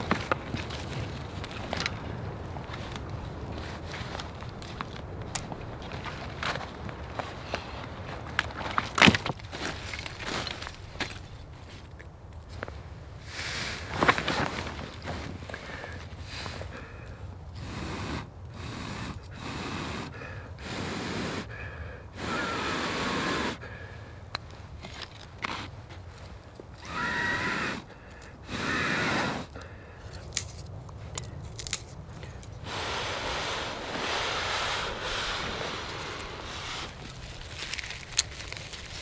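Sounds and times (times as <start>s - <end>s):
person blowing on ember: 17.6s - 23.8s, 26.8s - 30.2s, 32.2s - 38.3s.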